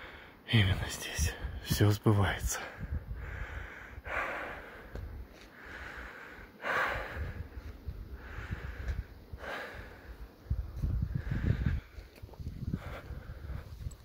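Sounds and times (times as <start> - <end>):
person breathing heavily: 0.0 - 0.4, 2.5 - 14.0.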